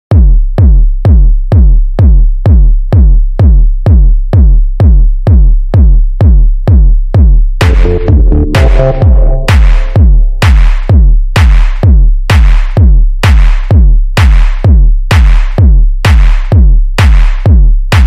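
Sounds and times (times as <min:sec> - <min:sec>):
drum machine kick drum: 0:00.1 - 0:18.0
sustained synth chords: 0:07.6 - 0:10.9.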